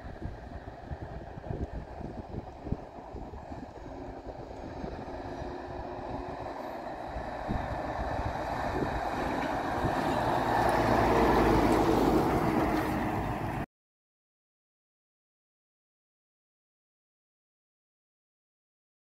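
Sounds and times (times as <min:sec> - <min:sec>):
diesel truck driving past: 0:00.0 - 0:13.7.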